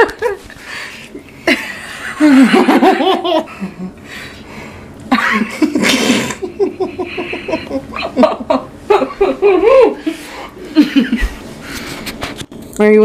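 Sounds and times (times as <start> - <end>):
people laughing: 1.5 - 4.0, 5.1 - 11.4.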